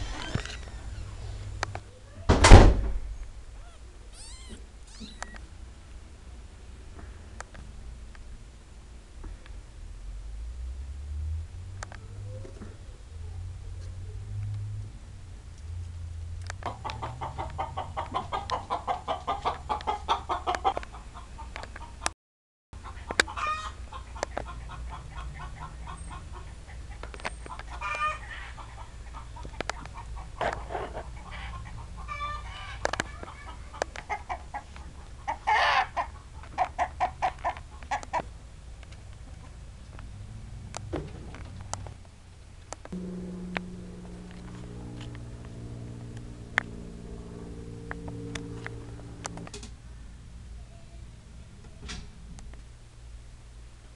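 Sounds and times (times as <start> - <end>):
chicken pitched calls: 3.6 - 5.4, 16.7 - 21.9, 22.8 - 30.4, 31.0 - 38.2
chickens clucking: 16.6 - 22.1, 22.8 - 38.3
steady low hum: 37.8 - 53.9.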